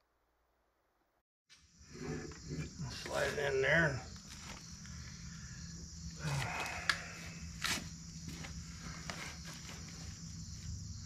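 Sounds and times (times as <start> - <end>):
crickets chirping: 1.5 - 11.0
footsteps scuffing: 7.6 - 10.6.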